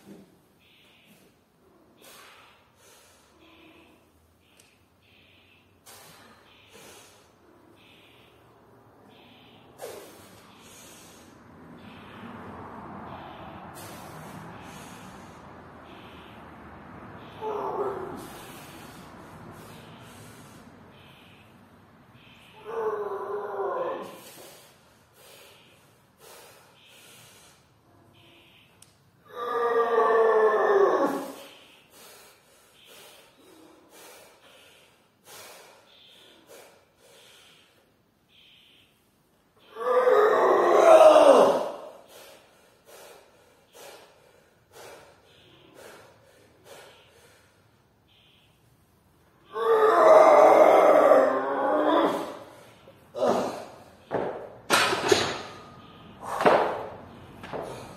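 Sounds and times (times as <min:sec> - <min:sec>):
heavy quick breathing: 0:42.0 - 0:47.7
man groaning: 0:53.1 - 0:53.8
man grunting: 0:53.1 - 0:53.8.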